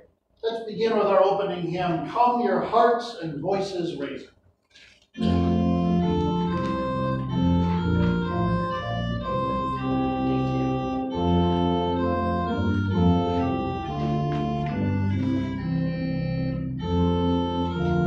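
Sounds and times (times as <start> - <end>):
church organ playing a hymn: 5.2 - 18.0.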